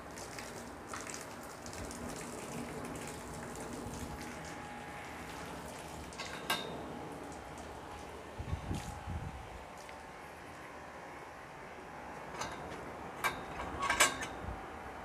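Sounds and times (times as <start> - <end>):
cow urinating on concrete: 0.0 - 10.8.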